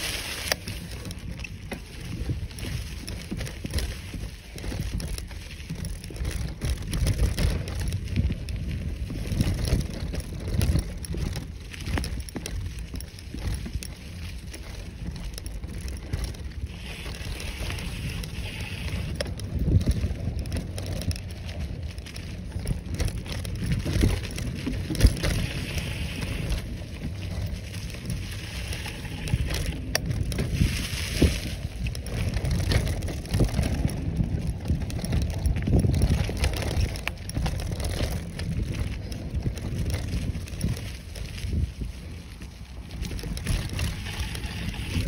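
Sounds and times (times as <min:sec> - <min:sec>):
bicycle knocking over bumps: 0:00.0 - 0:41.6, 0:42.2 - 0:45.0
bicycle tyres crackling over leaves: 0:00.0 - 0:45.0
wind rumble on microphone: 0:00.0 - 0:45.0.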